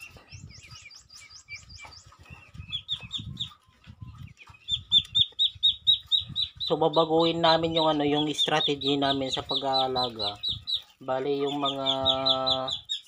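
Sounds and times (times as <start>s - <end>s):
ducklings peeping: 0.0s - 13.0s.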